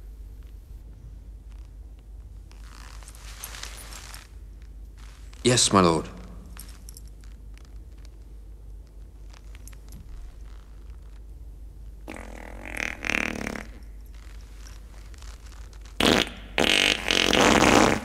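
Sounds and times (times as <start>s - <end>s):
buzzy fart sound effect: 12.0s - 13.9s, 16.0s - 18.0s.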